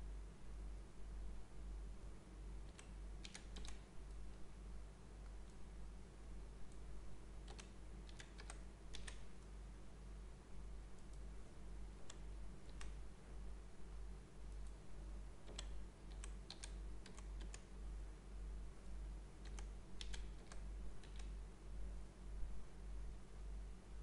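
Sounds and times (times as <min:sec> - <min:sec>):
low electrical hum: 0:00.0 - 0:24.0
keyboard typing: 0:02.7 - 0:03.8, 0:07.4 - 0:09.4, 0:15.4 - 0:17.7, 0:19.4 - 0:21.4.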